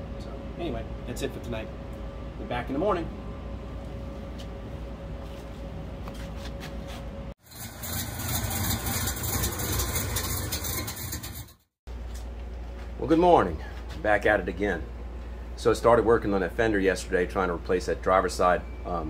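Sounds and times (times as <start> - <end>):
low room hum: 0.0 - 7.4, 11.9 - 19.0
engine idling: 7.4 - 11.6.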